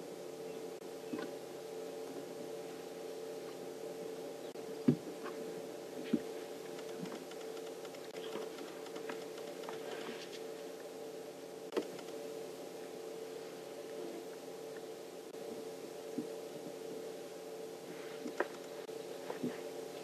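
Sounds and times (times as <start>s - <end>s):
light tusk clicks: 6.7s - 10.4s, 18.2s - 18.8s.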